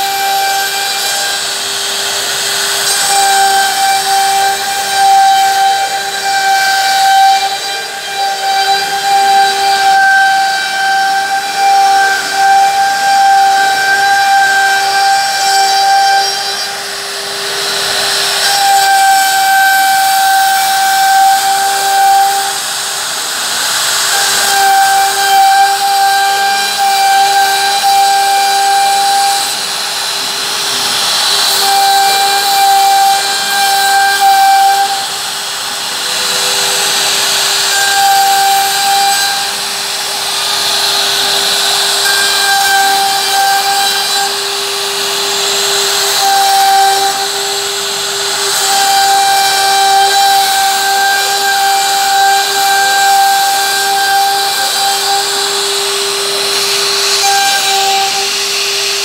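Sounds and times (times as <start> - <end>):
router spindle whine: 0.0 - 59.0.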